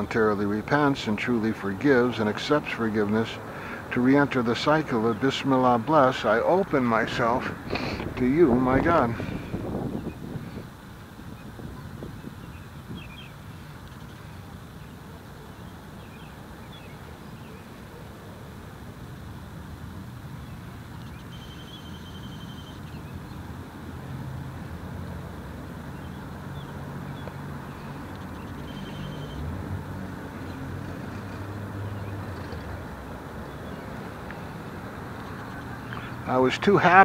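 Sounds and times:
steady background noise: 0.0 - 37.0
vehicle engine humming: 0.0 - 37.0
faint chirps: 27.7 - 29.4.

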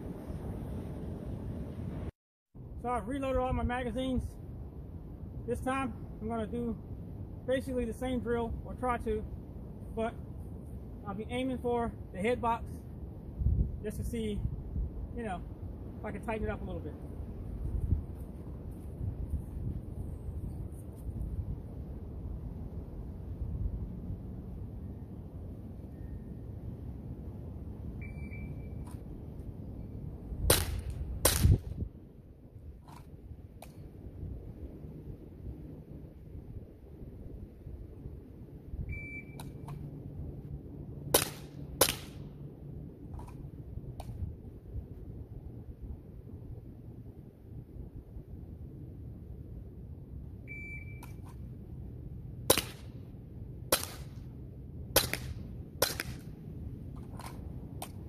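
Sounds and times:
low steady rumble: 0.0 - 58.0
high beep: 28.0 - 28.8, 38.9 - 39.4, 50.5 - 51.1
bb pistol shots: 30.5 - 31.6, 41.1 - 42.2, 52.5 - 52.9, 53.7 - 54.1, 55.0 - 56.2.

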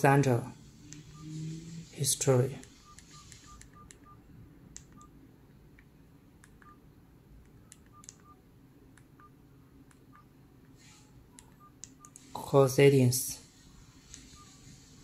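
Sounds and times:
short keypad beeps: 2.6 - 4.2, 7.6 - 8.4, 14.2 - 14.8.

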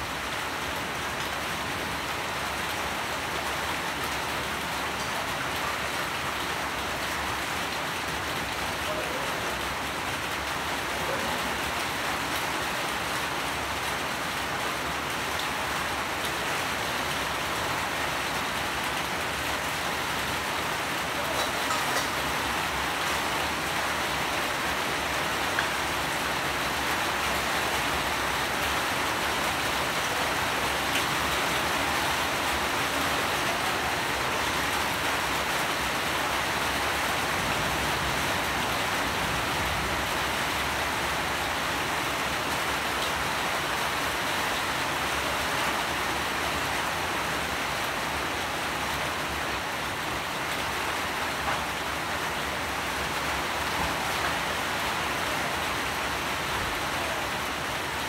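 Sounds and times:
steady rainfall: 0.0 - 58.0
raindrop ticks: 21.3 - 22.4.

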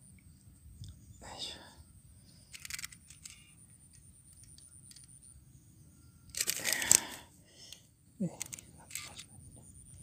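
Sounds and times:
sharp clicks: 6.3 - 7.8.

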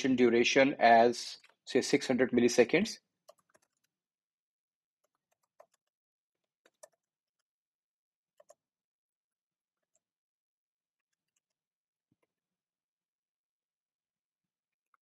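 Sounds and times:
faint keyboard typing: 3.2 - 4.0, 5.0 - 7.5, 8.4 - 8.6, 11.0 - 11.6.

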